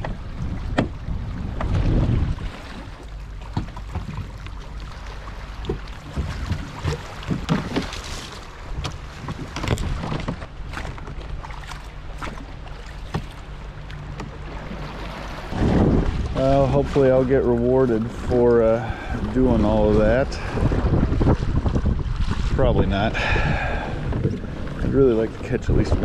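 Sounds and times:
knocks and clunks on plastic kayak: 0.0s - 2.8s, 3.4s - 4.5s, 5.6s - 13.4s, 14.0s - 17.0s, 20.0s - 26.0s
wind on microphone: 0.0s - 2.8s, 15.4s - 17.0s, 18.0s - 26.0s
paddling: 0.0s - 26.0s.

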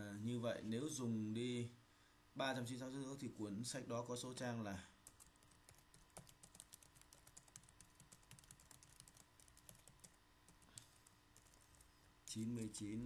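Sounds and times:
keyboard typing: 5.0s - 11.9s.

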